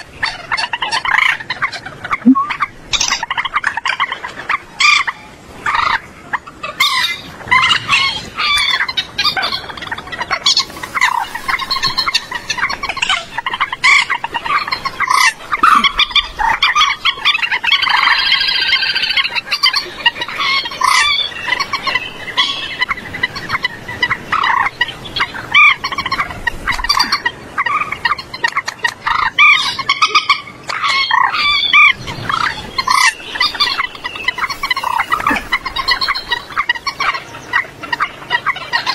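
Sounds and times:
moorhen calls: 4.7 - 38.9.

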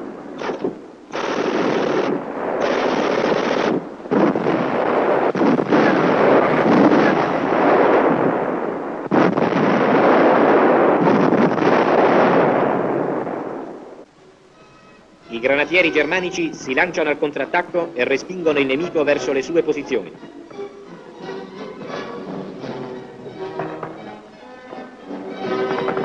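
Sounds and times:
machine-gun fire: 0.4 - 13.4
gunfire: 0.4 - 14.0.

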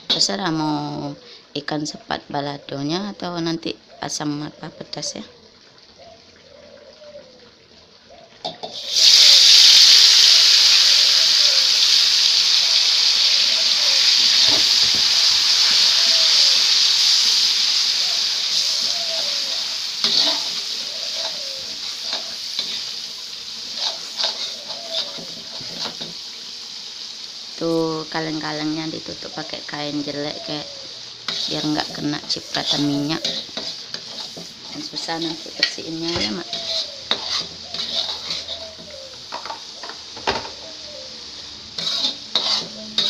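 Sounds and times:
chili paste sizzling in hot oil: 0.0 - 43.0
spatula scraping a wok: 13.1 - 26.8, 29.0 - 40.0, 41.3 - 43.0.

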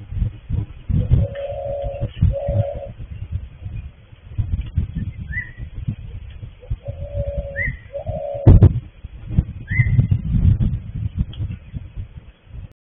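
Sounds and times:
low rumble: 0.0 - 12.7
birds chirping: 0.9 - 4.2, 4.9 - 5.8, 6.6 - 8.7, 9.6 - 10.2.

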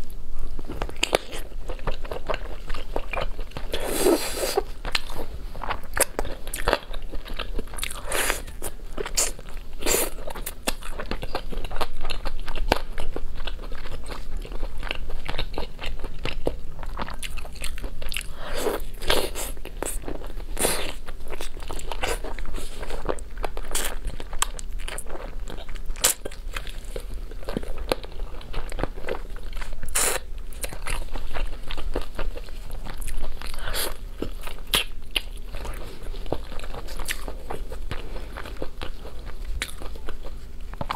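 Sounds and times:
mouth clicks and crunches: 0.7 - 40.9
person chewing chicken wings: 0.8 - 40.9.

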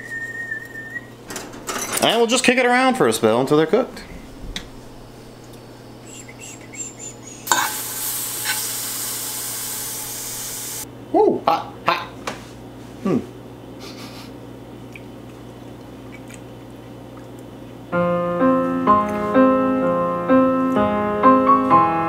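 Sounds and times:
low steady hum: 0.0 - 12.1
background piano chords: 1.1 - 9.0, 17.9 - 22.0.

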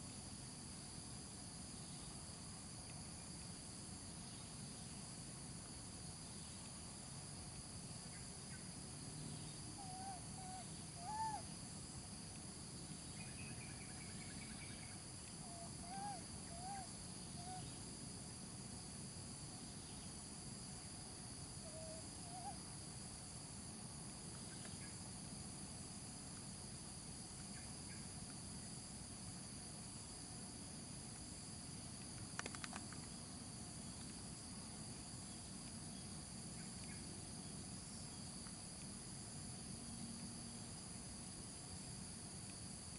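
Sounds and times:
insects trilling: 0.0 - 42.9
cluster of clicks: 31.9 - 33.2.

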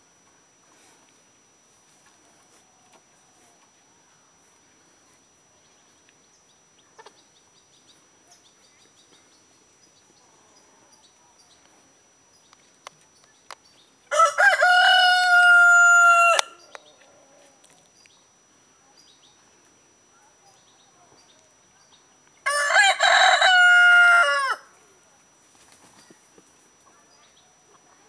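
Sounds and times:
small birds twittering: 5.0 - 14.1, 17.9 - 19.6
rooster crowing: 14.1 - 16.7, 22.4 - 24.7.

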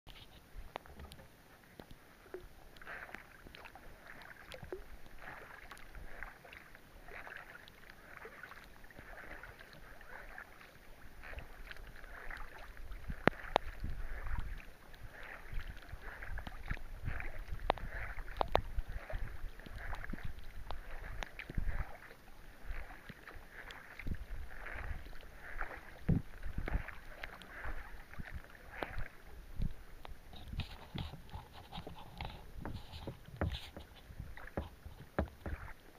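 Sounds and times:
kayak paddle splashing: 0.1 - 35.9.

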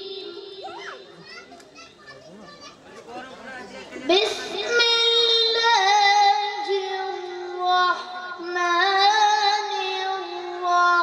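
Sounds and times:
boy singing: 0.0 - 1.0, 4.1 - 11.0.

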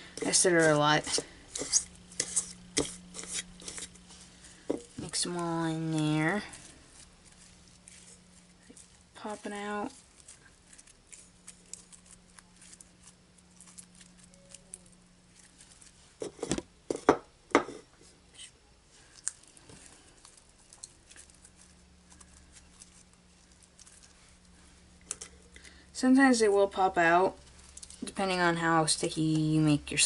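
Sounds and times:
hands squishing sticky slime: 4.9 - 16.0
sticky crackles and clicks: 5.0 - 16.0, 19.2 - 25.6.

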